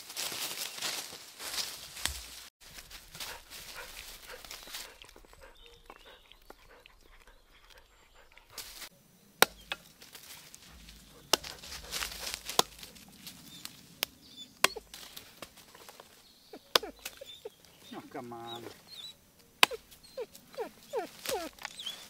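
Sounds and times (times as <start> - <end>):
rustling: 0.0 - 5.9, 7.5 - 22.0
chopping strikes: 9.4 - 9.9, 10.6 - 13.0, 14.6 - 15.0, 16.7 - 17.2, 19.6 - 19.9.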